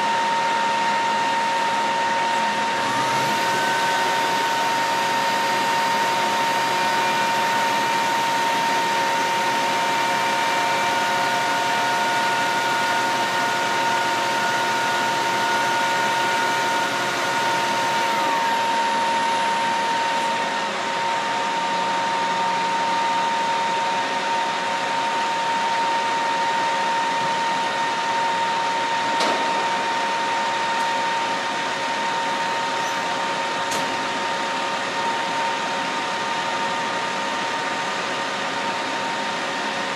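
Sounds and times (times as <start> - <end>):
machine winding down whine: 0.0 - 23.8
machinery drone with whine: 0.0 - 39.9.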